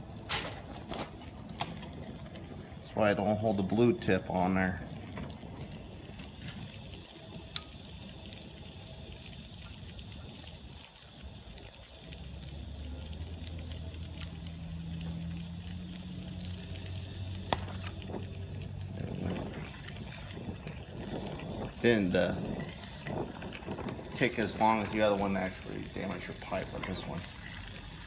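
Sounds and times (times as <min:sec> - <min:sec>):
torch flame hissing: 0:00.0 - 0:28.0
sharp pops: 0:00.2 - 0:02.7, 0:13.4 - 0:27.9.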